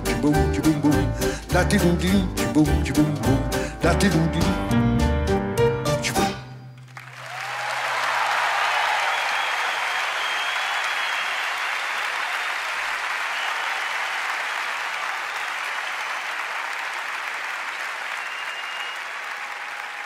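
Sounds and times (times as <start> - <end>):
audience applauding: 6.8 - 20.0.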